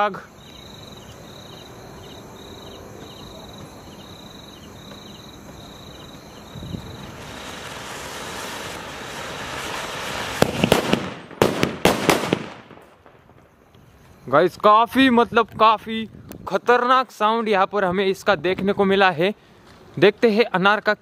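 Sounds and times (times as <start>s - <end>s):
crickets chirping: 0.0s - 11.4s, 12.6s - 16.9s
fountain firework hissing: 3.8s - 12.7s
firecrackers banging: 4.6s - 13.7s.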